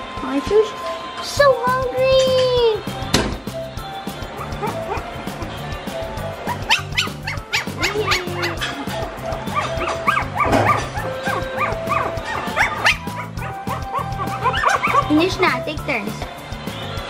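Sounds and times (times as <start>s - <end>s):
background music with steady beat: 0.0s - 17.0s
puppies yipping and whining: 4.2s - 5.5s, 6.4s - 15.4s.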